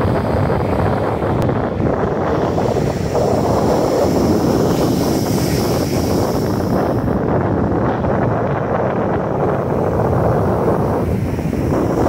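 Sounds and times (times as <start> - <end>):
wind buffeting microphone: 0.0 - 12.0
ocean surf breaking: 2.2 - 7.2.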